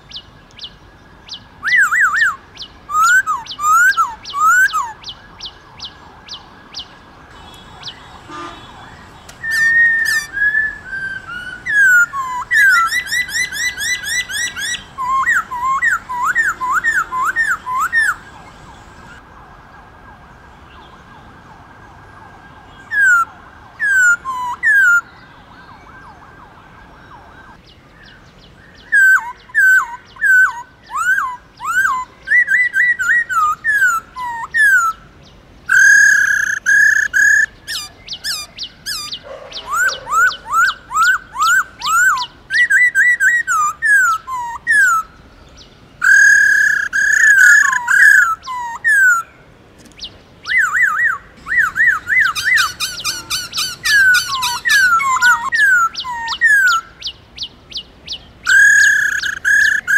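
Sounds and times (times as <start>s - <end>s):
bird whistling: 1.3s - 6.4s, 7.4s - 19.2s, 35.7s - 45.1s, 46.0s - 49.3s, 50.4s - 57.1s, 58.5s - 59.9s.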